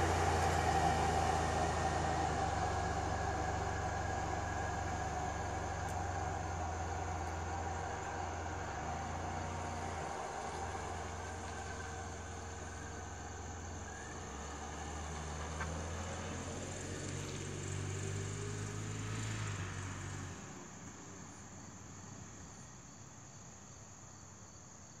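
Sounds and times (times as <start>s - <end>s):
car engine driving off: 0.0s - 21.4s
insects chirring: 0.1s - 18.9s.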